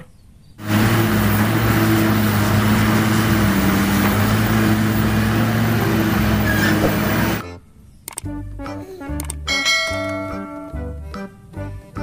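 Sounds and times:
excavator diesel engine running: 0.6 - 7.4
wide rushing noise: 0.6 - 7.4.

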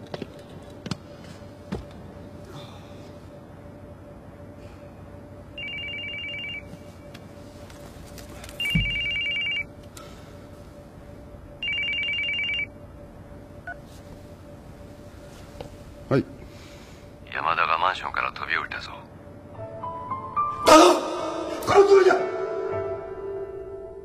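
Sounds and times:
telephone ringing with warbling trill: 5.6 - 6.7, 8.6 - 9.7, 11.6 - 12.7.

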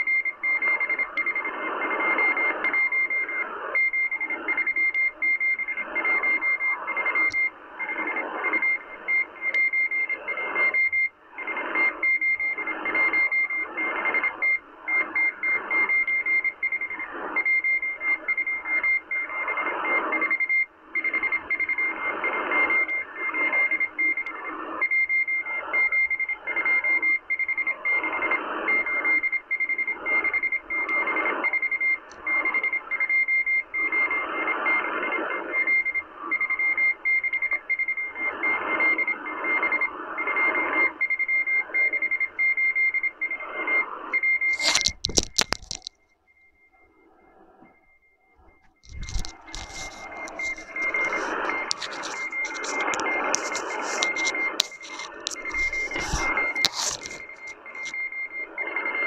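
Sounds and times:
morse code tone: 0.0 - 59.0
shortwave static hiss: 48.8 - 58.8.

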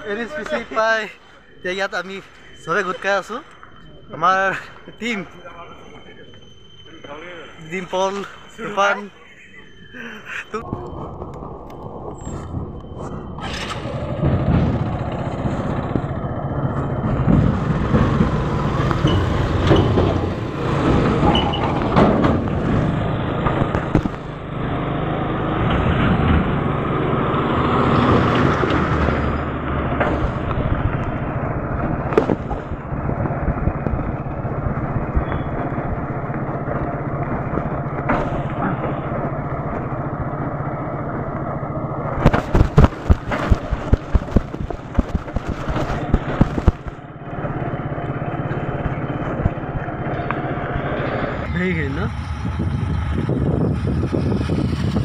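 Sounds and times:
road and wind noise: 0.0 - 55.0
motorcycle engine running: 13.0 - 55.0.

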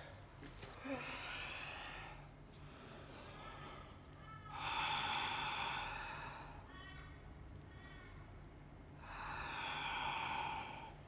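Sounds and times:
woman breathing: 0.0 - 6.7, 9.0 - 11.0.

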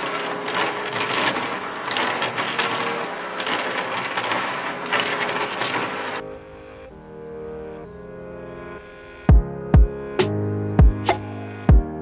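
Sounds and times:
plastic segments clicking: 0.0 - 6.2.

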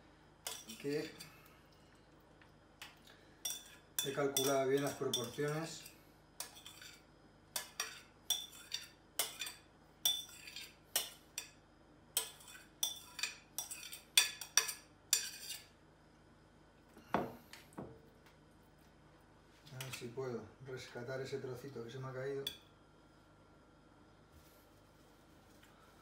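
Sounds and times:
metal spoon clinking on glass bowl: 0.4 - 1.2, 3.4 - 7.0, 7.6 - 11.6, 12.2 - 15.6.

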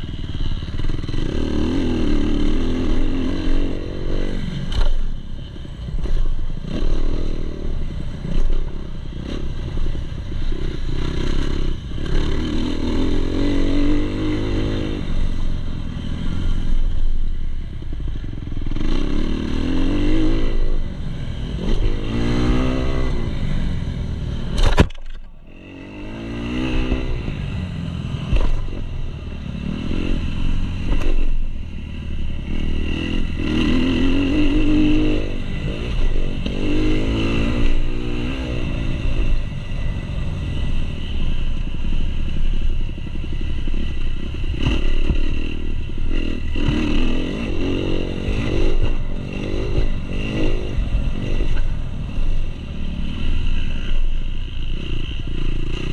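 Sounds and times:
motocross engine revving: 21.5 - 23.6, 29.6 - 40.0, 43.7 - 51.6.

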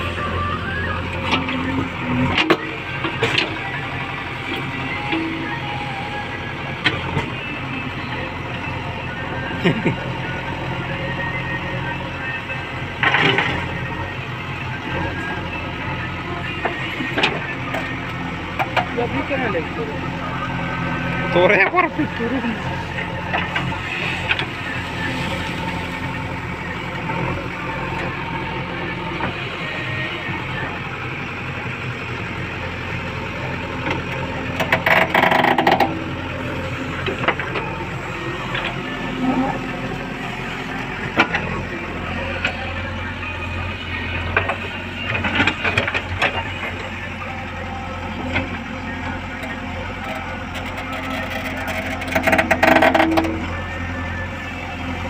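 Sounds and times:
backhoe digging soil: 0.0 - 9.6, 12.7 - 14.0, 16.1 - 31.5, 32.4 - 55.0
diesel engine running: 0.0 - 55.0.

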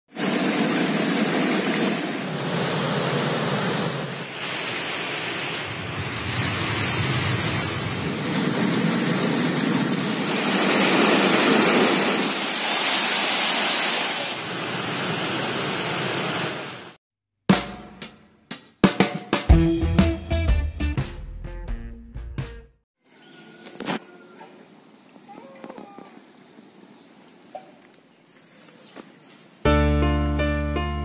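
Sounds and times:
waterfall rushing over rocks: 0.2 - 6.0, 10.0 - 17.0.

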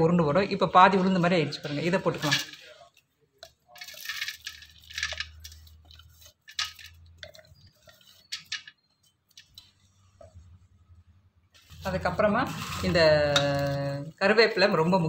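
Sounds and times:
scraping steel mixer jar: 0.8 - 9.7, 11.6 - 14.2
ground lentils dropping into vessel: 3.4 - 8.7.

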